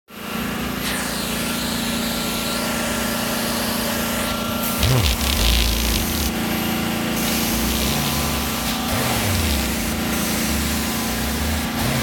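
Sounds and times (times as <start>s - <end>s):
extraction machine droning: 4.7s - 12.0s
wand spraying and sucking water: 4.8s - 6.4s, 7.2s - 12.0s.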